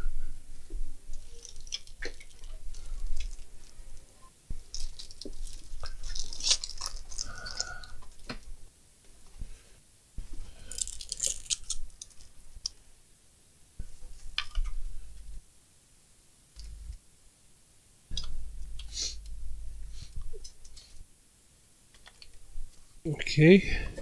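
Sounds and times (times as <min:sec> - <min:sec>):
rustling: 0:00.5 - 0:08.5.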